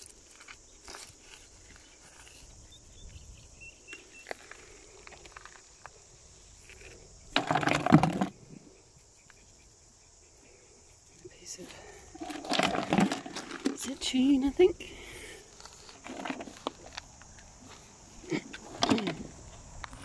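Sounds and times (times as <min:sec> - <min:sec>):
gritty rock crunching in hand: 0:00.0 - 0:02.7, 0:03.9 - 0:06.0, 0:06.6 - 0:08.4, 0:11.8 - 0:20.0.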